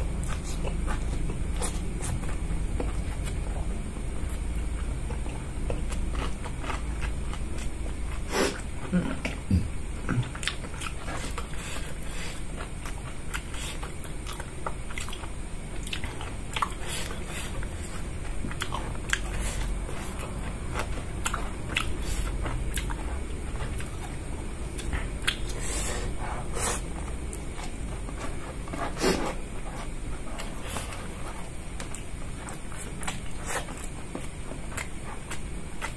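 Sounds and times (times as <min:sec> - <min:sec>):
mouth chewing clicks and smacks: 0:20.1 - 0:24.0, 0:24.8 - 0:25.5.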